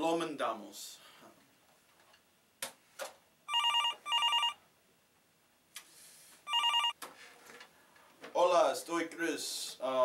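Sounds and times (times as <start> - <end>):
desk phone ringing: 3.5 - 4.6, 6.5 - 7.0.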